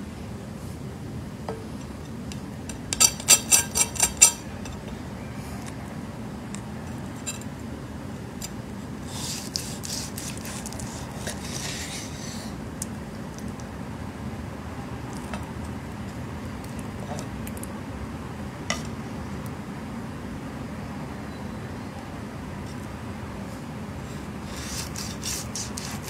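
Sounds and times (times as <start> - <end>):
knife scraping through crust: 3.0 - 4.5, 9.1 - 12.5, 24.4 - 26.0.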